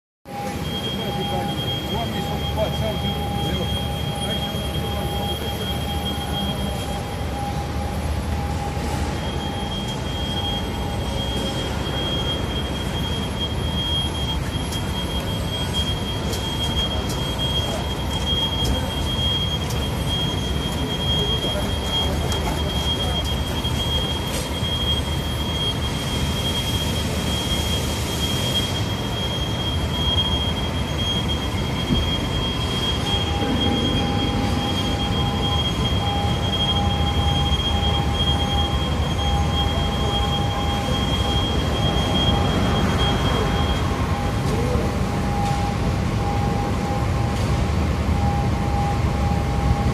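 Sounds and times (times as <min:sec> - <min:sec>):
mid-pitched tone: 0:00.3 - 0:45.7
high-pitched whine: 0:00.3 - 0:49.9
machinery low rumble: 0:00.3 - 0:49.9.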